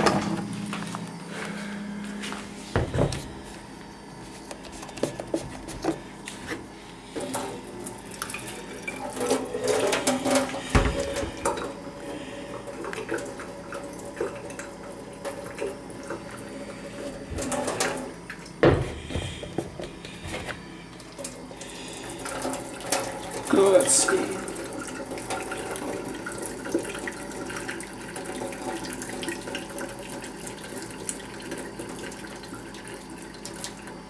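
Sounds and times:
water splashing into a steel sink: 22.0 - 33.9.

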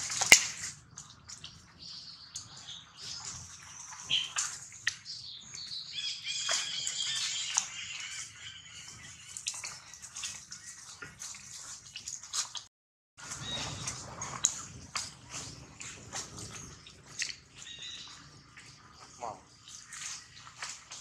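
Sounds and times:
rustling dry leaf litter: 13.2 - 21.0.

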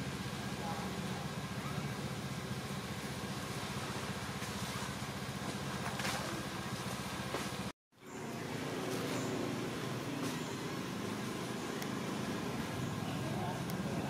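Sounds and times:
engine idling: 0.0 - 14.0.

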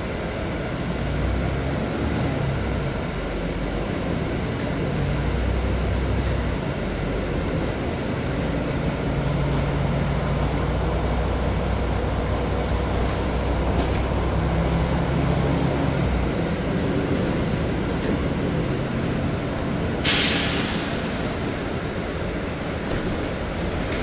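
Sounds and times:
bus running noise: 0.0 - 24.0
compressed air hiss: 20.0 - 22.0.

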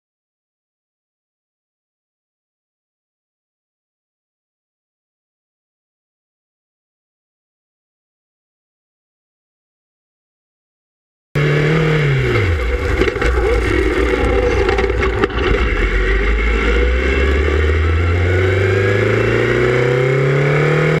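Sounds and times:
race car engine revving: 11.4 - 21.0.

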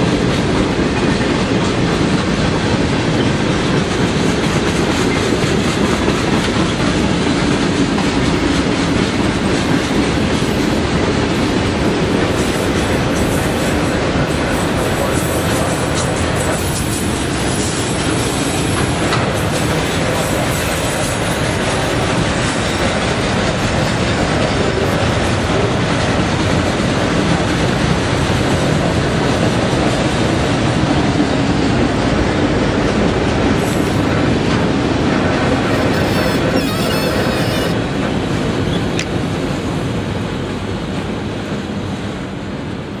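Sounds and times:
train wheels rumbling on rails: 0.0 - 43.0.

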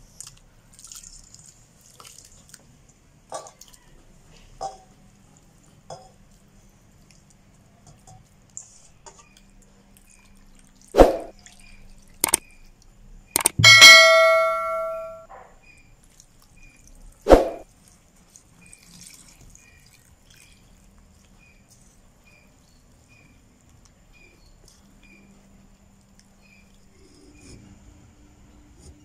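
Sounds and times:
steel bowls clanking: 13.6 - 15.2
bowl ringing metallic tone: 13.6 - 15.3.

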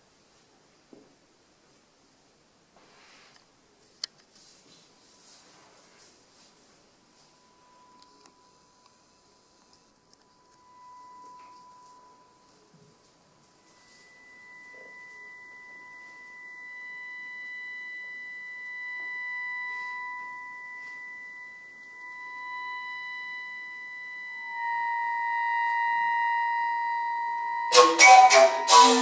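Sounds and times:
recorder sharp attacks: 27.7 - 29.0.

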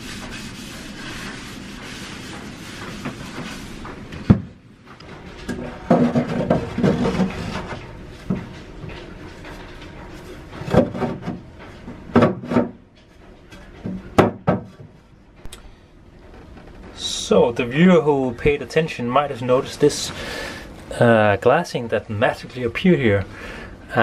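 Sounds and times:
fibreglass tube scraping: 0.0 - 4.2.

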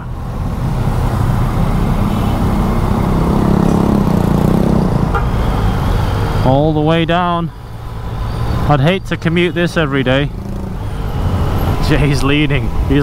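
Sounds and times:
motorcycle engine running: 0.0 - 6.8
road noise: 0.0 - 13.0.

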